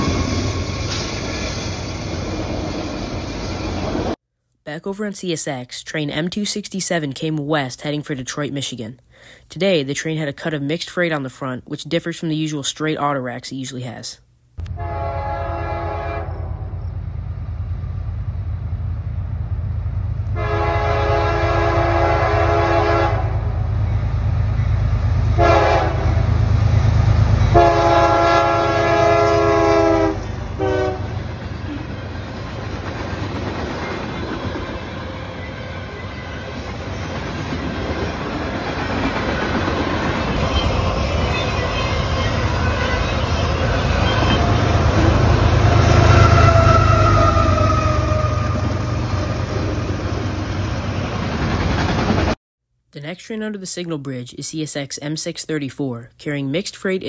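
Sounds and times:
train wheels clattering on rails: 0.0 - 4.1
locomotive air horn blasts: 14.7 - 16.7, 20.4 - 23.5, 25.4 - 26.2, 27.5 - 31.2, 45.6 - 49.0.

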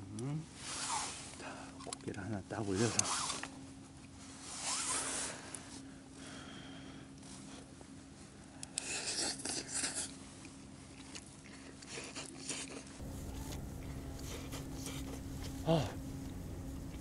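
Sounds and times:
chewing: 8.7 - 17.0.

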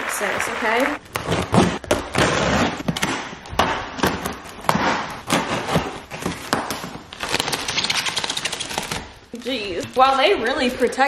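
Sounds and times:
cardboard ripping and knocking: 1.1 - 8.0
blade slitting tape and cardboard: 1.1 - 9.2.

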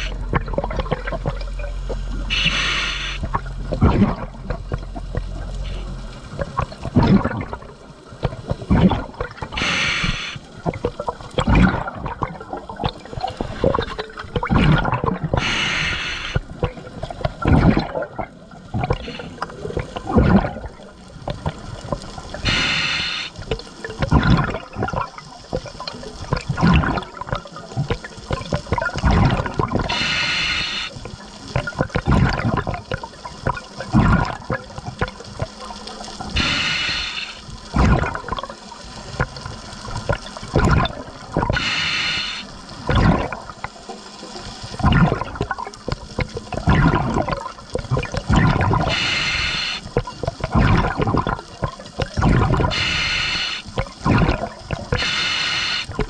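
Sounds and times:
bubbles gurgling: 0.0 - 56.0
regulator inhale hiss: 2.2 - 3.3, 9.6 - 10.5, 15.4 - 16.5, 22.4 - 23.4, 29.9 - 31.0, 36.4 - 37.5, 41.6 - 42.6, 48.9 - 50.0, 52.7 - 53.8, 54.9 - 56.0.

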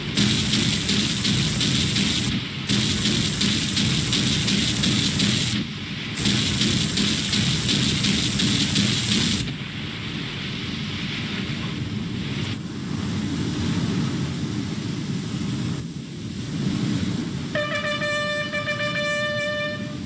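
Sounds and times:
rapid automatic gunfire: 0.0 - 9.6.

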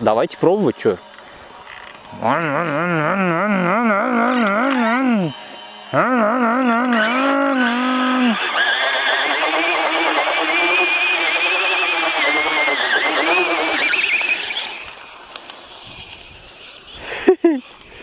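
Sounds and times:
electric motor whining: 0.0 - 18.0
wavering pitched tone: 1.7 - 8.4.

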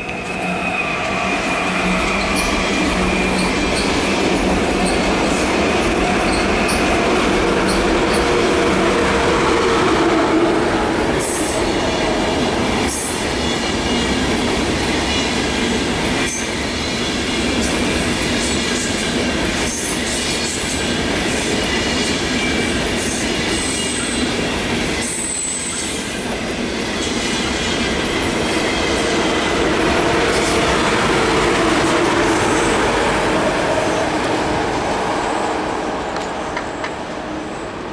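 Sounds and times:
high wheel squeal: 0.0 - 4.2
train wheels rumbling on rail: 0.0 - 37.9.

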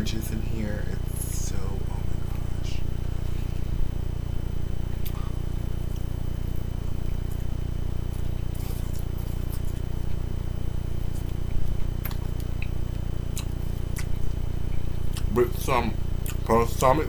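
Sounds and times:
low hum: 0.0 - 17.0
person chewing salad: 8.1 - 15.3, 16.2 - 16.5.

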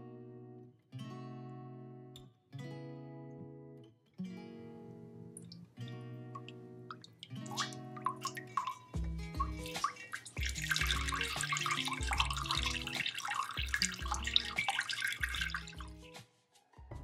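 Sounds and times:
water pouring into a metal pot: 6.4 - 16.0
background music with bass line: 7.5 - 17.0.

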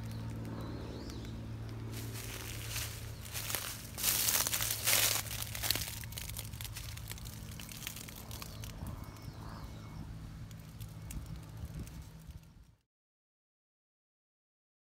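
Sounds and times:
footsteps crunching dry leaves: 0.0 - 9.4.

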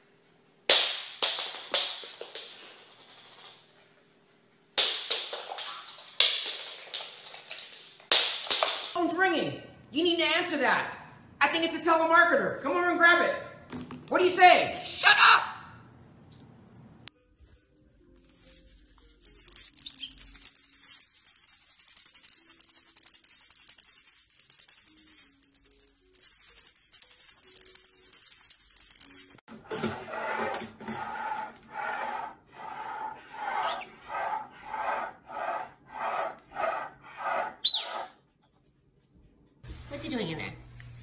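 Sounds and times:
toy maraca rattling: 17.1 - 29.5
parrot high squeak: 37.6 - 38.2.

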